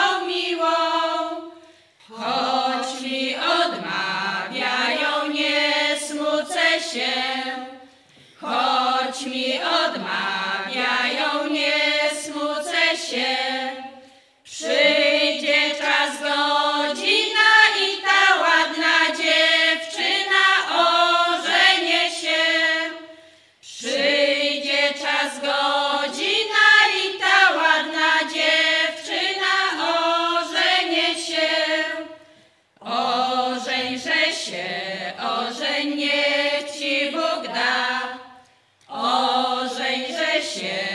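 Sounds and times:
women's choir singing unaccompanied: 0:00.0 - 0:40.9.

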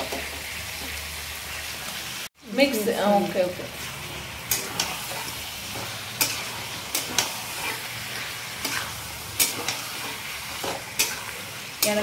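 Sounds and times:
chicken sizzling in a pan: 0:00.0 - 0:12.0
metal turner scraping a pan: 0:03.8 - 0:12.0.

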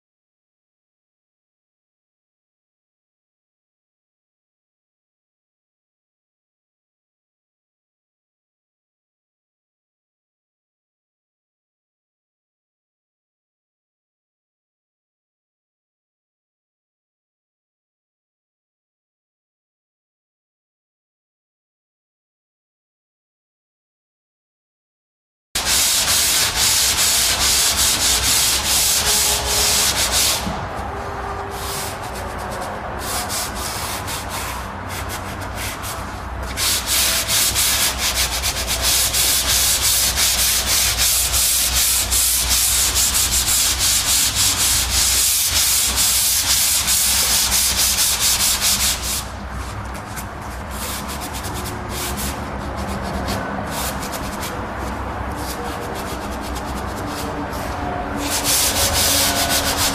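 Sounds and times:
sandpaper scratching on plaster: 0:25.6 - 0:59.9.

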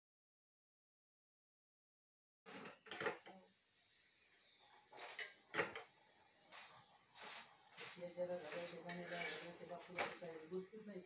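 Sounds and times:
kitchen items knocking and clicking: 0:02.7 - 0:03.4, 0:05.2 - 0:05.9.

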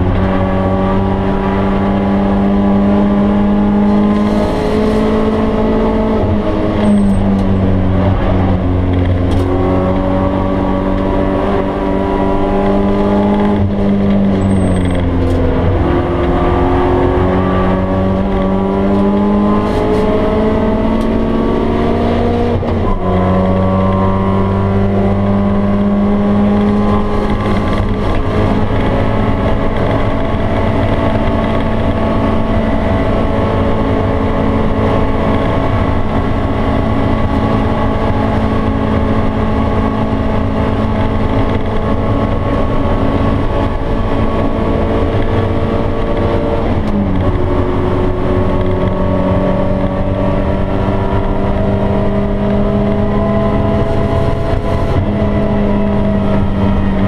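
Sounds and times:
car engine revving through gears: 0:00.0 - 0:57.0.

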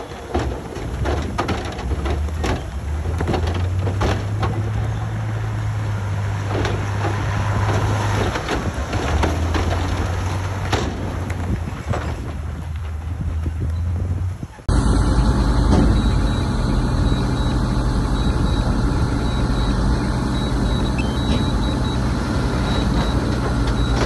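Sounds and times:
metallic clanks and knocks: 0:00.0 - 0:05.0, 0:06.3 - 0:13.0
diesel engine under load: 0:00.0 - 0:24.0.

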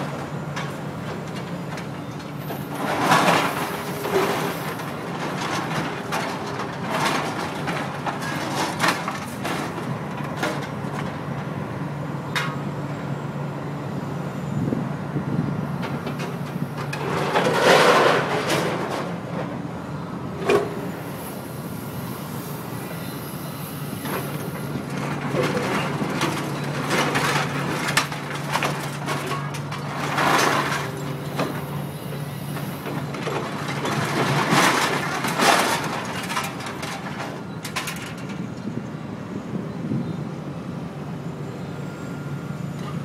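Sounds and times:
excavator diesel engine running: 0:00.0 - 0:43.0
scrap metal clanking: 0:16.2 - 0:19.2, 0:25.0 - 0:31.7.

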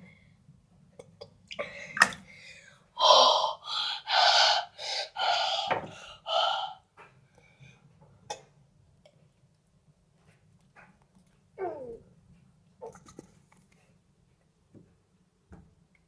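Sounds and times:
boy gasping and panting: 0:01.6 - 0:06.9.

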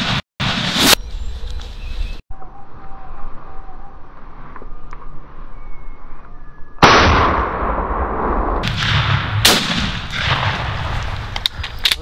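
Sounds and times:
shotgun blasts with echo: 0:06.8 - 0:11.4.

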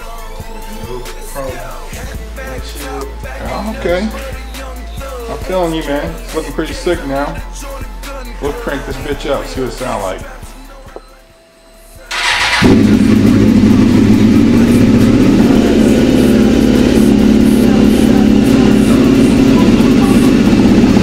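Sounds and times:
motorcycle engine idling: 0:12.1 - 0:21.0
motorcycle engine starting: 0:12.1 - 0:21.0.

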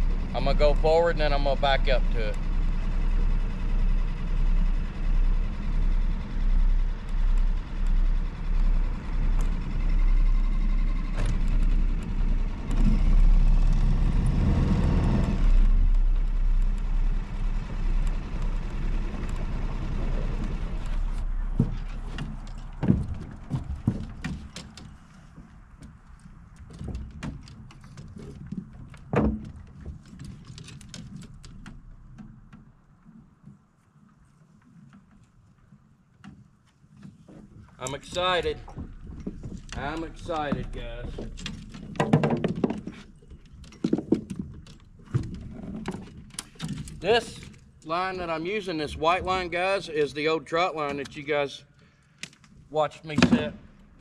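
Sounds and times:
outboard motor running: 0:00.0 - 0:24.6
knocks and clunks in boat: 0:17.6 - 0:33.8, 0:34.8 - 0:48.2.

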